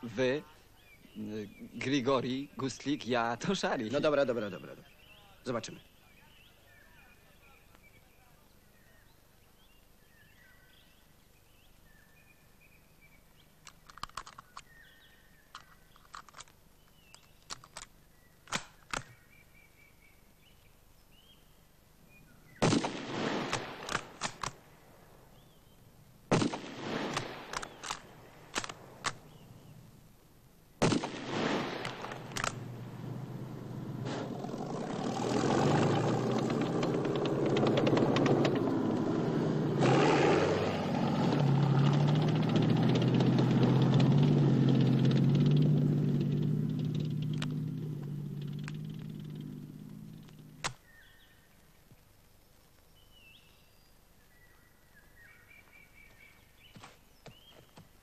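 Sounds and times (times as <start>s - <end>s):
small clicks: 13.3s - 14.8s, 15.5s - 19.2s, 23.5s - 24.6s, 27.1s - 29.2s, 31.8s - 32.6s, 46.8s - 50.8s
rifle shots echoing: 18.5s - 19.2s, 22.6s - 25.2s, 26.3s - 29.6s, 30.8s - 34.3s
tank engine and tracks running: 31.9s - 50.7s.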